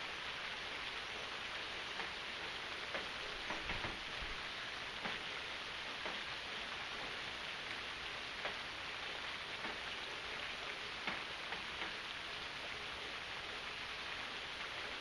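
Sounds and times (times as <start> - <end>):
steady rain hiss: 0.0 - 15.0.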